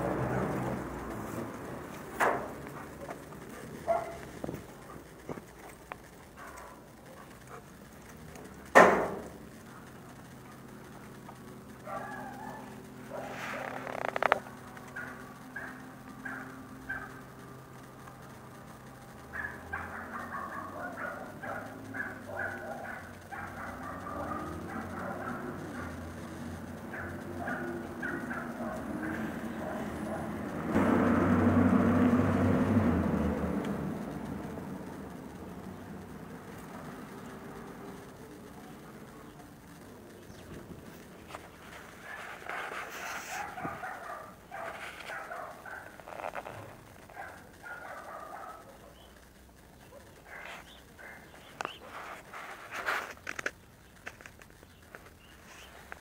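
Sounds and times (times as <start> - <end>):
rapid animal calls: 19.2 - 30.6, 49.9 - 52.3.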